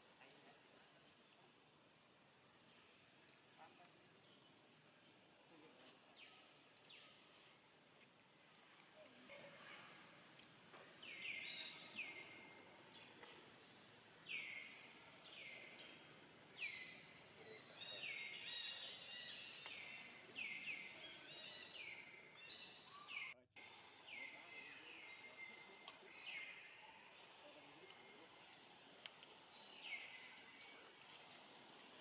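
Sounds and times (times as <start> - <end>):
faint outdoor hiss: 0.0 - 32.0
birds chirping: 8.8 - 32.0.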